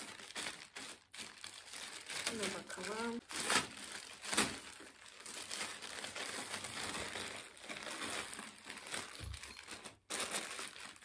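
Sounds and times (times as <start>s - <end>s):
plastic mailer bag crinkling: 0.0s - 11.0s
scissors cutting plastic: 2.0s - 4.9s.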